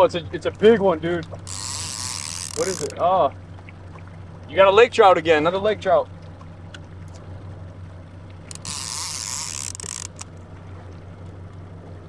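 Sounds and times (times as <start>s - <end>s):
boat motor humming: 0.0s - 12.0s
faint clicks: 1.2s - 3.0s, 8.3s - 10.4s.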